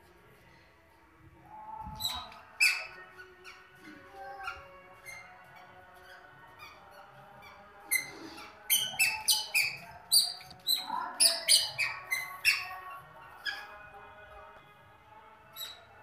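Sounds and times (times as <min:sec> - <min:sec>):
squeaky shoes squeaking: 0:02.0 - 0:13.8, 0:15.5 - 0:16.0.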